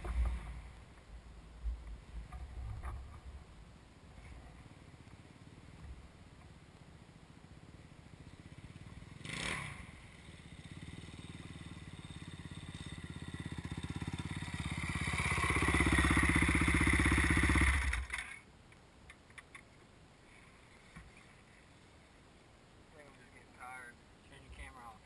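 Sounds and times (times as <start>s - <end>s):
dirt bike engine running: 7.5s - 18.4s.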